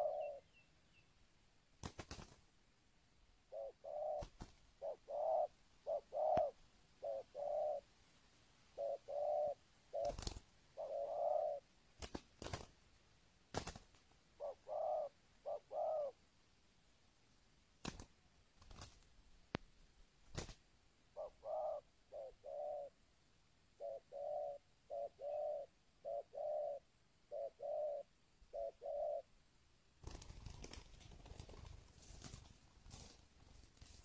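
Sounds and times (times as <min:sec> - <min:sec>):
dove cooing: 0:00.0 - 0:00.6, 0:03.5 - 0:07.9, 0:08.7 - 0:11.7, 0:14.4 - 0:16.2, 0:21.1 - 0:23.0, 0:23.8 - 0:29.3.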